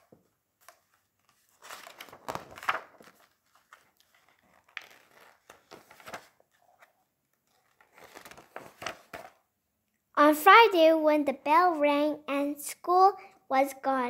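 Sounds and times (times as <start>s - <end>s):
book pages turning: 0.0s - 9.4s.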